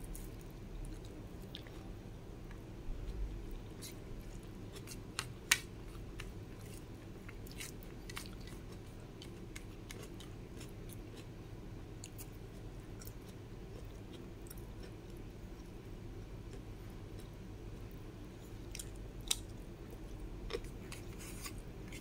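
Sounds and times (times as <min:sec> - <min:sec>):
steady low hum: 0:00.0 - 0:22.0
chewing food: 0:00.2 - 0:01.9, 0:05.9 - 0:11.4, 0:12.0 - 0:15.7.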